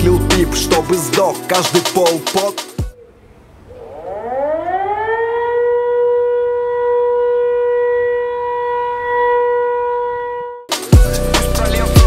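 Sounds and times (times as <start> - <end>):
rap beat: 0.0 - 2.9, 10.7 - 12.0
siren-like tone: 2.9 - 10.7.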